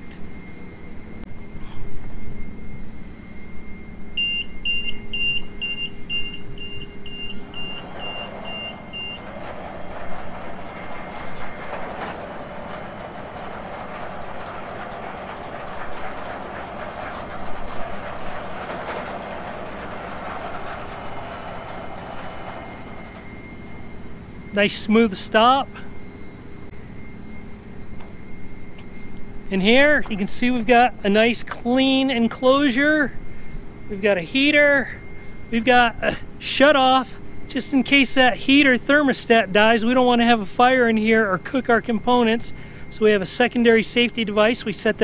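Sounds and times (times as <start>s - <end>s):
high warning beeps: 4.2s - 26.4s
slide gate rolling rattle: 7.1s - 24.9s.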